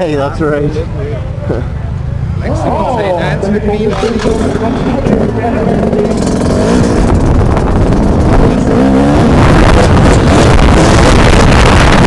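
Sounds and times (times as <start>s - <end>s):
dirt bike engine revving: 3.9s - 12.0s
wind rushing over microphone: 4.3s - 12.0s.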